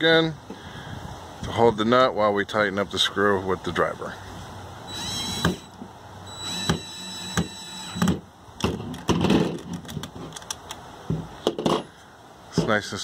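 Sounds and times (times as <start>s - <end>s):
cordless drill whining: 4.9s - 8.2s
drill clicks: 4.9s - 10.8s
drill knocking on plastic table: 6.5s - 9.6s.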